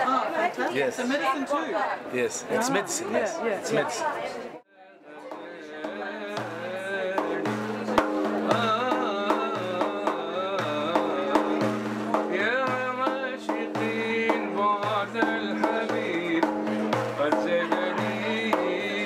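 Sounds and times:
low drum beat: 0:05.3 - 0:19.0.

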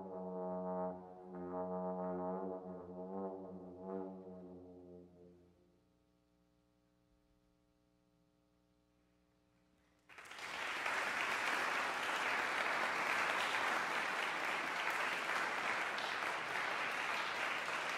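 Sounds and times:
audience applause: 0:10.1 - 0:17.9.

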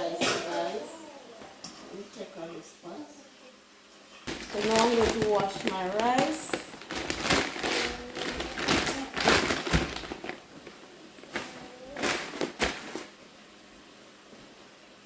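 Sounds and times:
plastic bag crinkling: 0:04.2 - 0:13.2.

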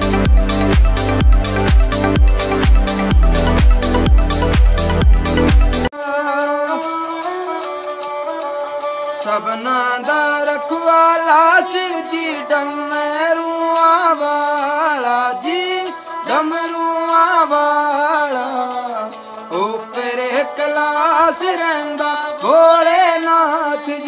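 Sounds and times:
small bells jingling: 0:05.9 - 0:24.0.

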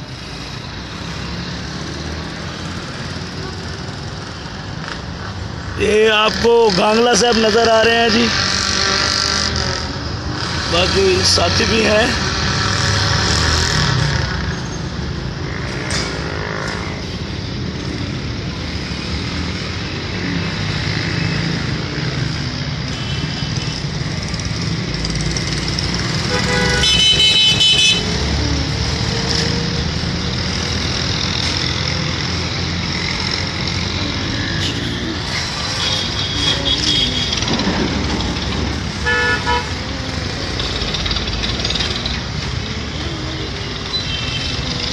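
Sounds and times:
motorcycle engines running: 0:00.0 - 0:44.9
street traffic: 0:00.0 - 0:44.9
vehicle horn: 0:26.2 - 0:28.1, 0:39.0 - 0:39.7.

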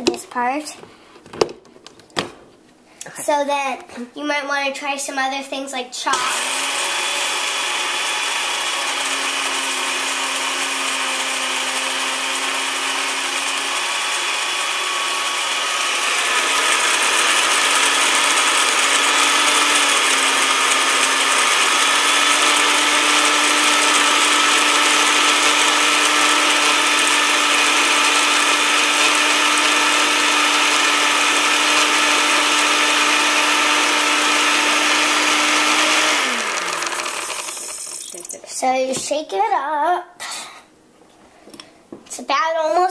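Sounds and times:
blender motor grinding: 0:06.1 - 0:38.4.

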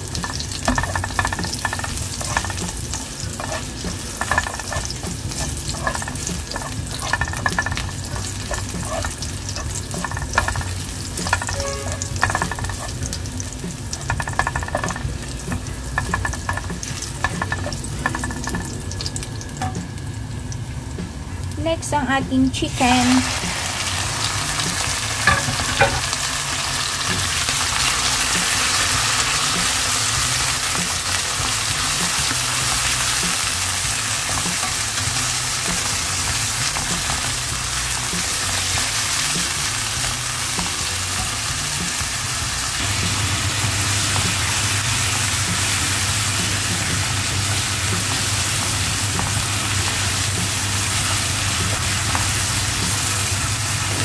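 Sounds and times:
spatula stirring in pan: 0:00.0 - 0:18.8, 0:27.8 - 0:42.1
chicken sizzling in oil: 0:00.0 - 0:54.0.

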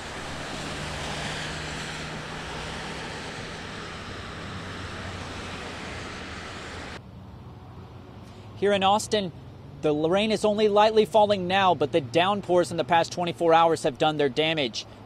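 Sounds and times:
tyres swishing on wet road: 0:00.0 - 0:07.0.

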